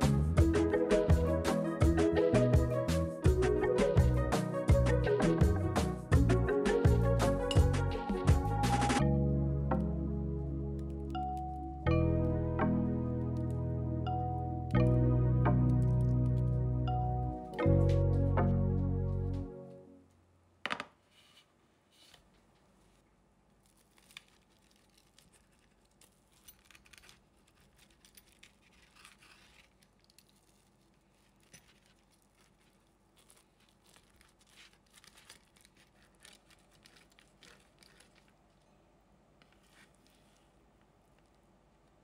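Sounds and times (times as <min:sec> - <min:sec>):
scratching and crinkling handling noises: 0:21.0 - 0:42.0.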